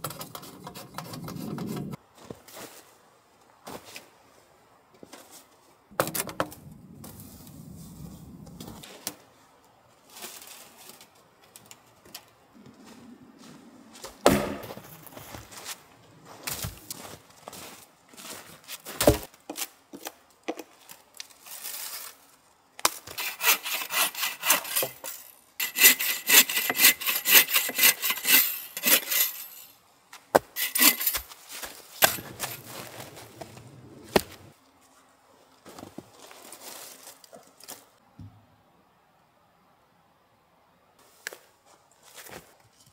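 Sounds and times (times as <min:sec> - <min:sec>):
footsteps: 0:12.6 - 0:19.3, 0:24.7 - 0:29.7, 0:30.4 - 0:34.5
bow saw cutting log: 0:23.1 - 0:29.7, 0:30.4 - 0:31.2, 0:32.0 - 0:33.0.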